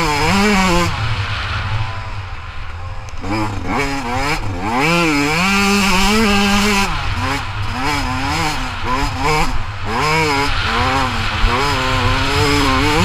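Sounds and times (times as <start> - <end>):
dirt bike engine revving: 0.0 - 13.0.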